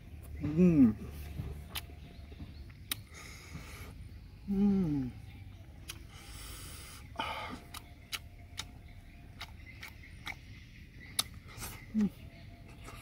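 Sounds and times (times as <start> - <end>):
man chewing: 2.6 - 4.1, 5.8 - 13.0
wet lip-smacking clicks: 2.7 - 3.1, 5.8 - 6.1, 7.6 - 11.4.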